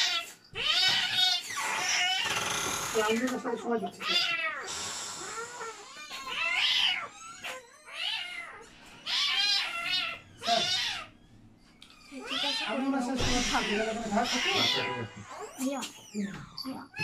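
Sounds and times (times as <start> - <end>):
cat meowing: 0.0 - 2.5, 3.9 - 11.2, 11.9 - 17.0.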